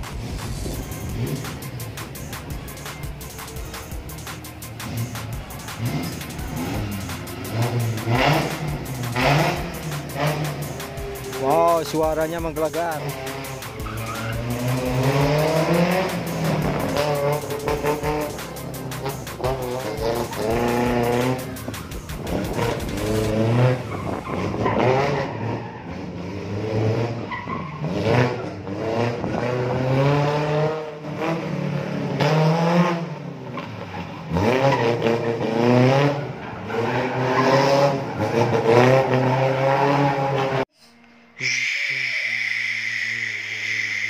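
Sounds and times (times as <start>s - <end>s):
pickup engine revving: 0.0s - 40.7s
tyres squealing: 1.4s - 26.0s, 41.4s - 44.0s.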